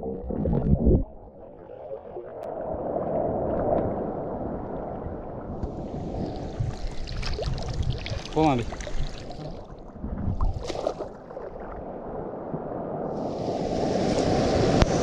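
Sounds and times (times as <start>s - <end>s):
water sloshing and washing: 5.6s - 12.1s.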